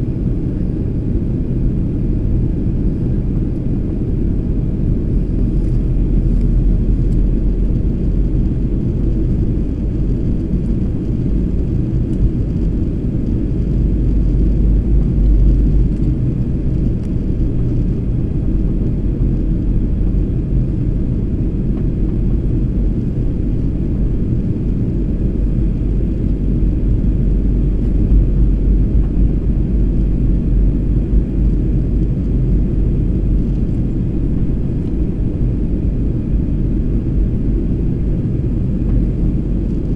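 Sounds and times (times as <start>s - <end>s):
jet engine rumble in cabin: 0.0s - 39.9s.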